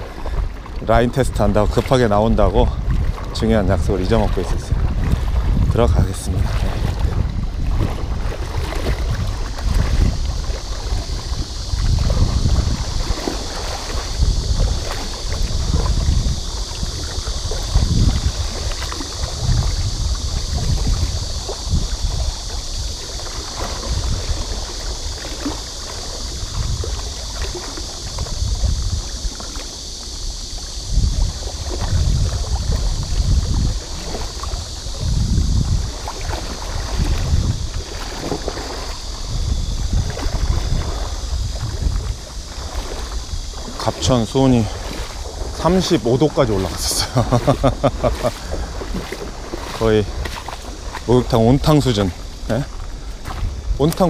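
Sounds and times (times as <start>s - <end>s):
wading through shallow water: 0.0s - 54.0s.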